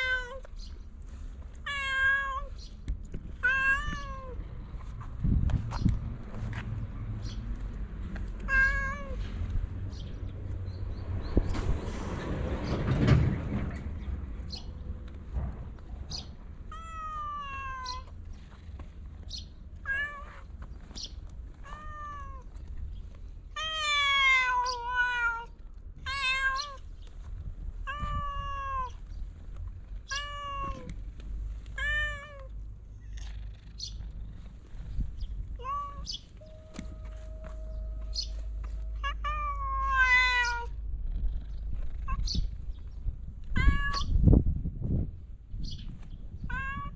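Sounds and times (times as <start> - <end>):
cat meowing: 0.0 - 0.5, 1.6 - 2.6, 3.4 - 4.5, 8.4 - 9.2, 16.7 - 18.2, 19.8 - 20.5, 21.6 - 22.6, 23.5 - 26.8, 27.8 - 29.0, 30.0 - 31.0, 31.7 - 33.3, 35.6 - 36.9, 38.9 - 40.8, 43.5 - 44.2, 46.4 - 46.9.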